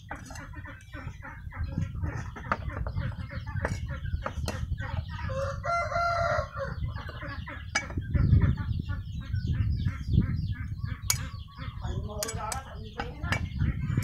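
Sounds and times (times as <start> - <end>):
rooster crowing: 5.3 - 6.8.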